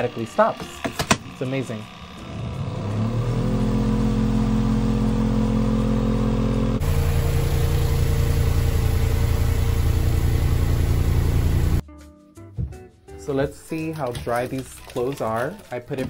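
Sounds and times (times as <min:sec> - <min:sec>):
spin-dryer motor humming: 0:00.0 - 0:11.8.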